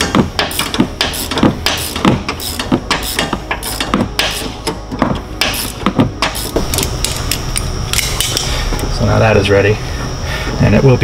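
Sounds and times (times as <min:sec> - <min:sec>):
ratchet wrench clicking: 0:00.0 - 0:04.8, 0:05.4 - 0:08.5.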